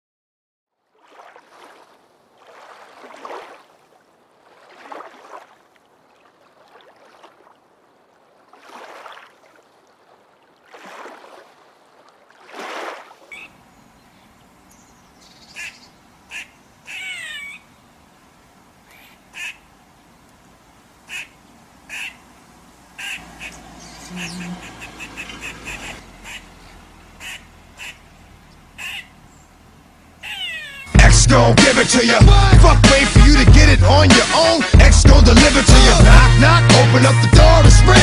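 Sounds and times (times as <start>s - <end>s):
outdoor background hiss: 1.1s - 32.2s
short chirping bird calls: 13.2s - 17.7s, 23.0s - 29.6s, 30.2s - 31.0s
drawn-out animal cries: 15.5s - 17.7s, 21.9s - 22.2s, 23.0s - 31.0s.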